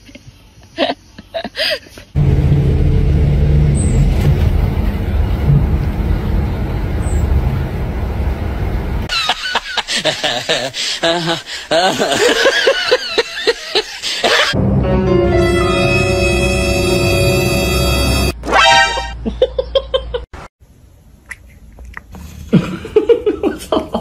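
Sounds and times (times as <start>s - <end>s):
bus engine rumble: 1.4s - 9.2s
music: 14.6s - 19.1s.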